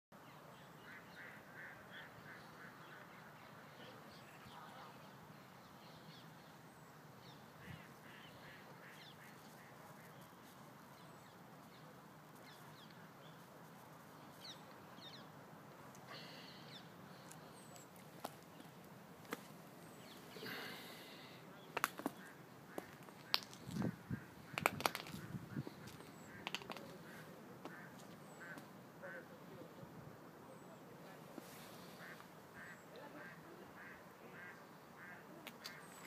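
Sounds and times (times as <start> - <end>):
bird calls: 16.0 - 29.4, 30.5 - 36.0.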